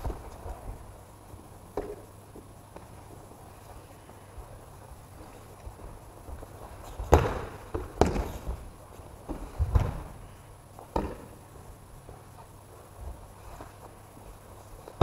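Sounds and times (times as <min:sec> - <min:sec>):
bodies thudding on mats: 0:06.3 - 0:10.2.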